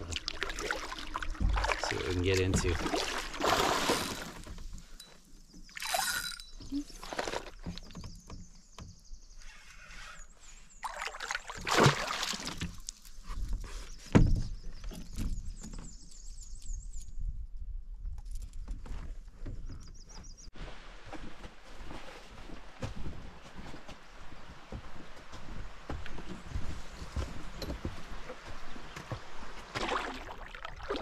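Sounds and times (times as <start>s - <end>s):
fishing reel whirring: 5.8s - 6.5s.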